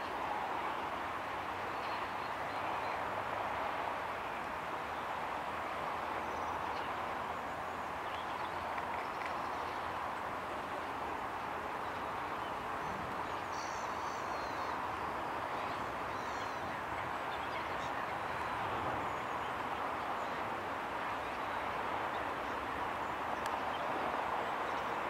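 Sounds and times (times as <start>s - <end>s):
outdoor background noise: 0.0s - 25.0s.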